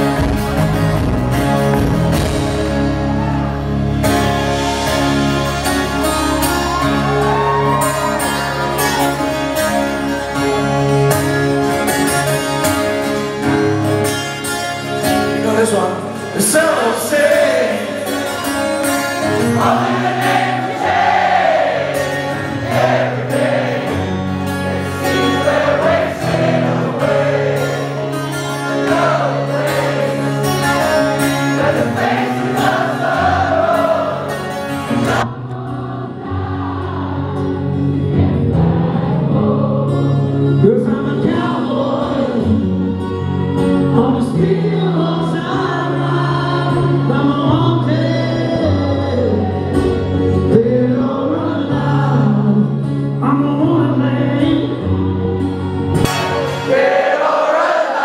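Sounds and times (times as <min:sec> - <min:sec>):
drums: 0:00.0 - 0:09.1
bass guitar: 0:00.0 - 0:56.7
guitars: 0:00.0 - 0:58.0
live rock band: 0:00.0 - 0:58.0
chorus of voices singing: 0:16.8 - 0:43.0, 0:56.0 - 0:58.0.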